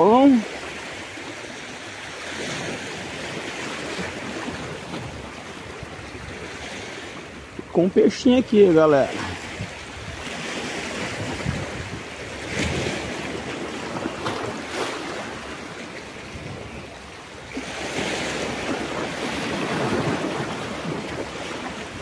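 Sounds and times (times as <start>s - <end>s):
sea surf washing in: 0.0s - 22.0s
wind on microphone: 9.1s - 22.0s.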